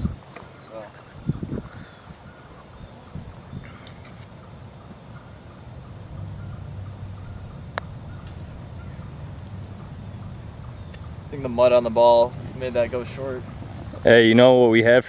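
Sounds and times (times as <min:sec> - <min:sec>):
insects chirring: 0:00.0 - 0:15.0
putter striking golf ball: 0:07.7 - 0:08.5, 0:10.8 - 0:11.1.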